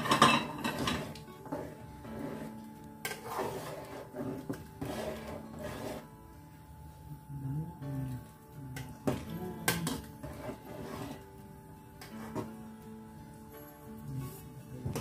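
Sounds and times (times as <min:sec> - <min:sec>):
metal ladle scraping a pot: 0:00.0 - 0:06.2, 0:09.0 - 0:11.4, 0:12.0 - 0:12.6
background music with held notes: 0:00.0 - 0:15.0.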